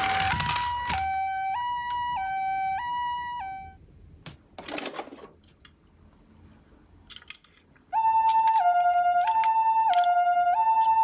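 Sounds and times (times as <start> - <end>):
toy two-tone siren: 0.0 - 3.8, 8.0 - 11.0.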